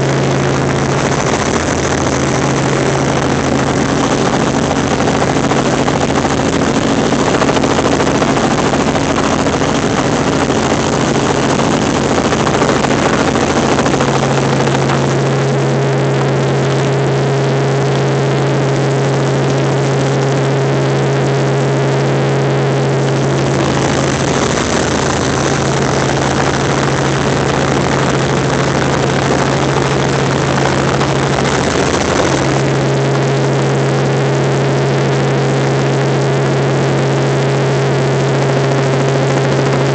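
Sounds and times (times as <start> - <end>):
helicopter engine and rotor drone: 0.0 - 39.9.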